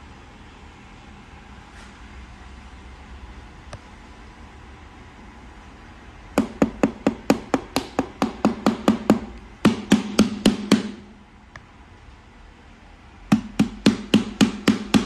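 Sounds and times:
hand knocking on display: 0:06.4 - 0:11.0.

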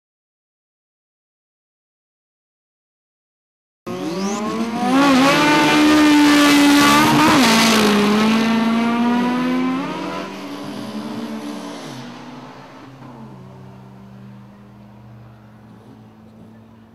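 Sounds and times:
racing car engines revving high: 0:03.9 - 0:16.9.

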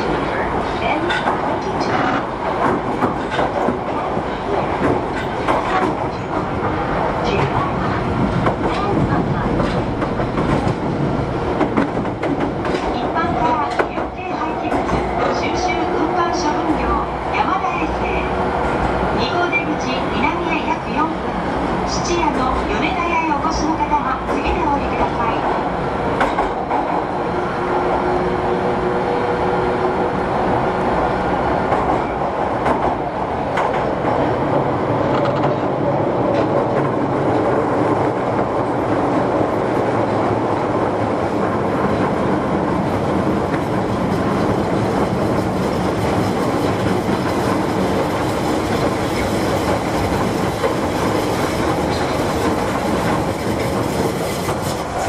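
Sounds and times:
clickety-clack of track joints: 0:00.0 - 0:15.8, 0:23.6 - 0:27.1, 0:31.6 - 0:55.0
subway train wheels rushing: 0:00.0 - 0:55.0.

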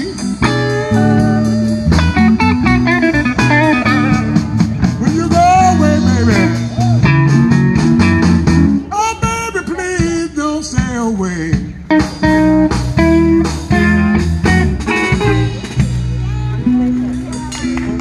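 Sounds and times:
second electric guitar: 0:00.0 - 0:10.9, 0:11.5 - 0:18.0
drum kit: 0:00.0 - 0:18.0
electric guitar lead with bent notes: 0:00.0 - 0:18.0.

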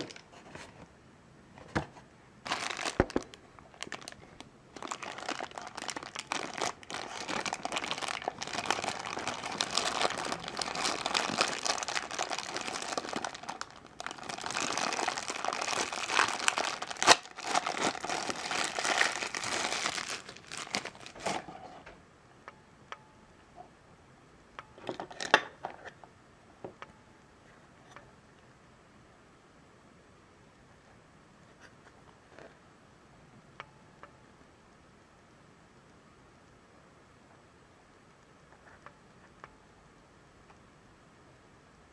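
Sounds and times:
plastic bag crinkling and tearing: 0:02.4 - 0:21.5.

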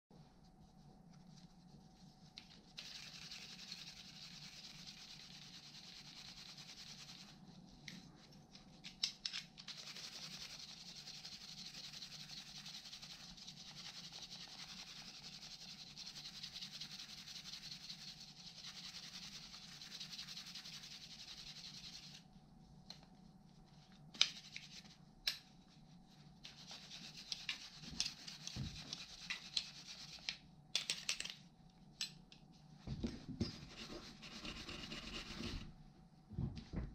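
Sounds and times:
scratchy rubbing on metal tool: 0:01.2 - 0:07.6, 0:09.6 - 0:22.2, 0:26.4 - 0:30.4, 0:33.5 - 0:35.7.

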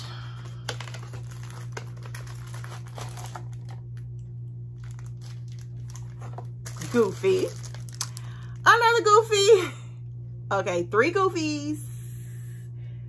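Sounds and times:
plastic bag crinkling: 0:00.0 - 0:09.0
low hum: 0:00.0 - 0:13.0.

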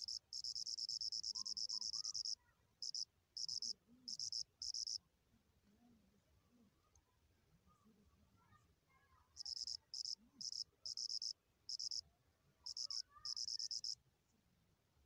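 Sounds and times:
cricket trilling: 0:00.0 - 0:05.0, 0:09.4 - 0:12.0, 0:12.7 - 0:14.0.

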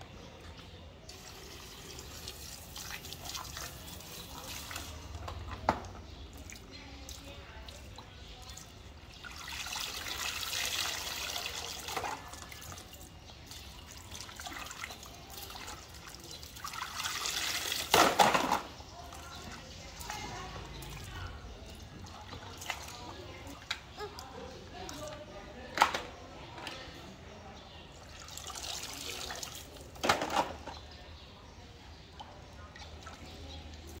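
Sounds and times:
water sloshing and trickling: 0:00.0 - 0:34.0
water pouring into plastic basin: 0:01.1 - 0:23.3, 0:27.9 - 0:30.7.

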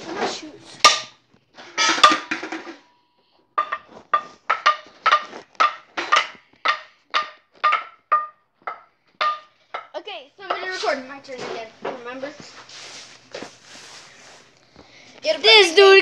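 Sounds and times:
metal bat tapping pings: 0:05.7 - 0:09.9.

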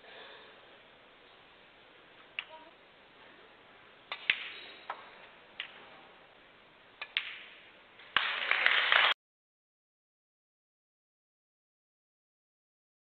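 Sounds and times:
audience applause: 0:08.1 - 0:09.2.

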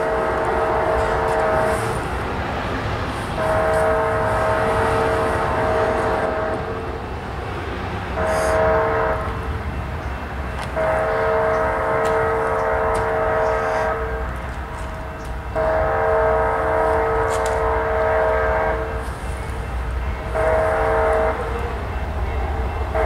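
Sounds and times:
train air horn blasts: 0:00.0 - 0:02.2, 0:03.2 - 0:06.9, 0:08.2 - 0:09.5, 0:10.7 - 0:22.0
train rumble: 0:00.0 - 0:23.0.

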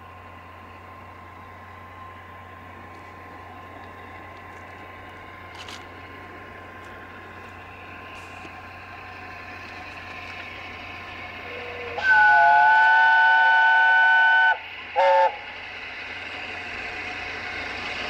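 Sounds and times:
distant steam train: 0:00.0 - 0:18.0
steam locomotive whistle blast: 0:11.4 - 0:15.5.

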